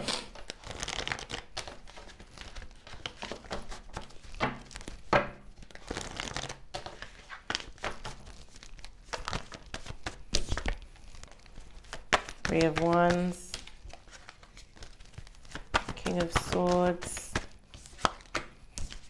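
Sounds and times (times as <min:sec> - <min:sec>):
cards being shuffled: 0:00.0 - 0:19.0.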